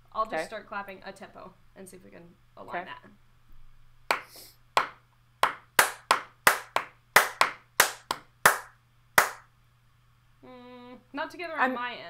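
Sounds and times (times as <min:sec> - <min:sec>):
hand claps: 0:04.1 - 0:09.5.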